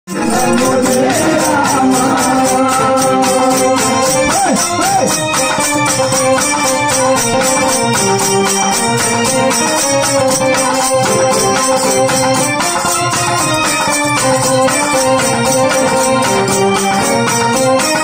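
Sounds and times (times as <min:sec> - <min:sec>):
man singing into microphone: 0:00.1 - 0:05.3
electronic keyboard notes: 0:00.1 - 0:18.0
hand drum beat: 0:00.1 - 0:18.0.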